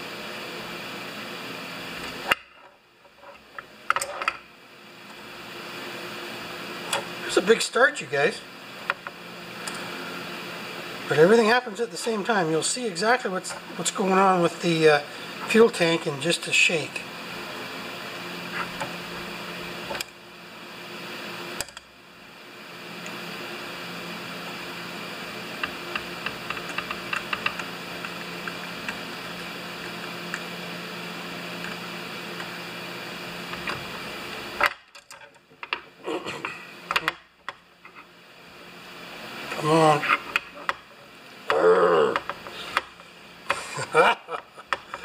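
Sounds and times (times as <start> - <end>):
room hum: 0.0 - 45.0.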